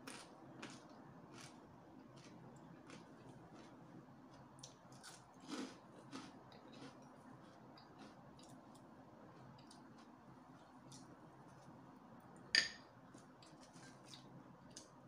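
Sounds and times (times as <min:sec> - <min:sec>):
close-up chewing of noodles: 0:00.0 - 0:11.1.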